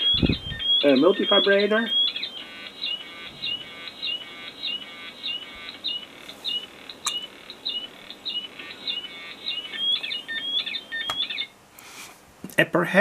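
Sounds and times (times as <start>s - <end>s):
synthesizer chirps and warbles: 0.0s - 11.6s.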